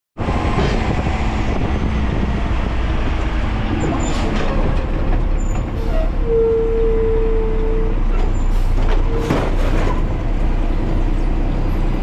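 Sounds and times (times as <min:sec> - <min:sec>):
truck engine and road rumble: 0:00.2 - 0:12.0.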